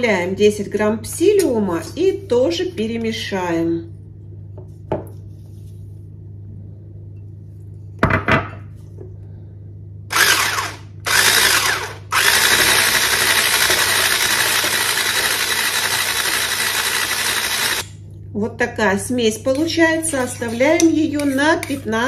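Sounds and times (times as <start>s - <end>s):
electric hand blender whisking: 10.1s - 17.9s, 21.2s - 22.0s.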